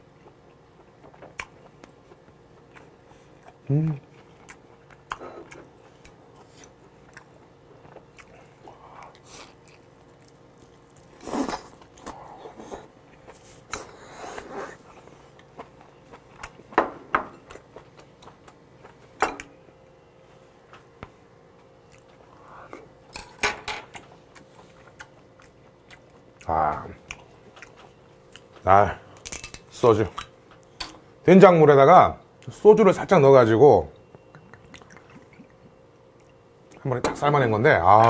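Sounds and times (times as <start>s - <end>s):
person chewing wetly: 0.1s - 16.8s, 21.8s - 22.9s, 23.9s - 28.7s, 33.9s - 36.8s.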